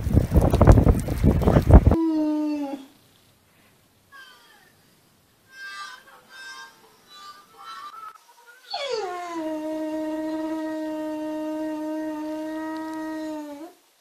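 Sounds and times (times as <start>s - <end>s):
dog howling: 1.9s - 3.0s, 6.0s - 13.8s.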